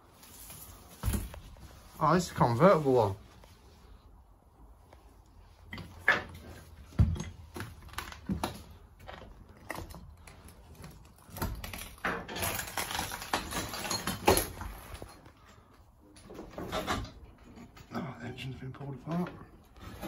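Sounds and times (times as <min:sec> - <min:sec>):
scraping and rustling with clatter: 0:05.0 - 0:20.0.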